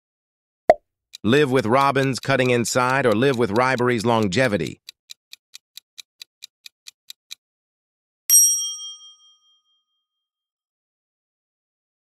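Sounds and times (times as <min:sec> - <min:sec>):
countdown timer ticking: 0:01.2 - 0:06.5
bright ding: 0:08.3 - 0:09.8.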